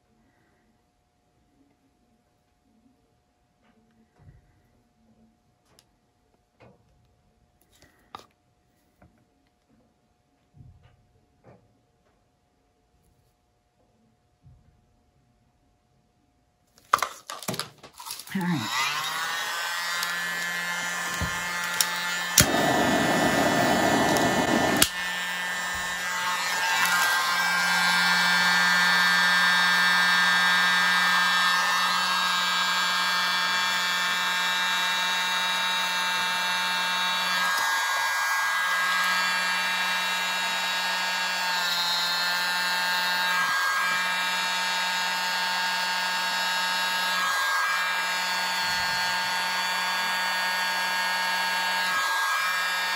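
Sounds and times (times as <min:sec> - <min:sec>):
mini blower humming and whining: 0:16.9 - 0:52.9.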